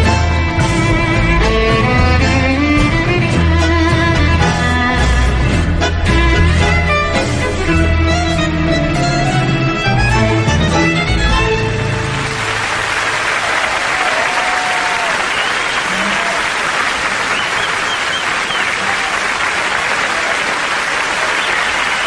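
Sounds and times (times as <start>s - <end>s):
tango music: 0.0s - 13.3s
studio audience applauding: 11.9s - 22.0s.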